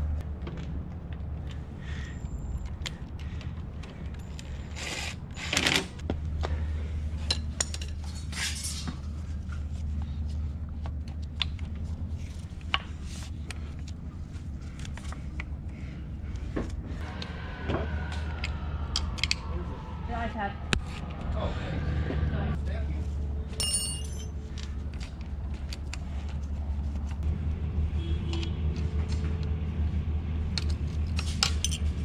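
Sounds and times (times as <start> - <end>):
steady low hum: 6.0 - 28.0
metal tools clinking: 23.6 - 24.4, 31.4 - 32.0.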